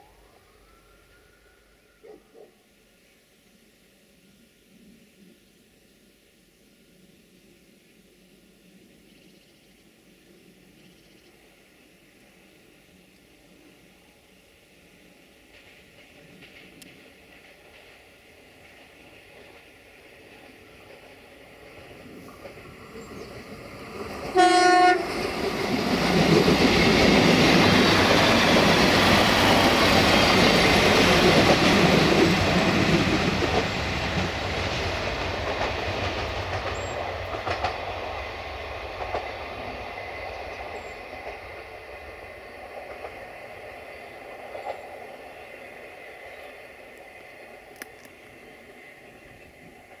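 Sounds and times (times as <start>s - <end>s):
railcar engine passing: 0.0s - 50.0s
wheels clattering on rails: 15.4s - 24.4s, 25.1s - 48.3s
railcar horn blast: 24.3s - 25.2s.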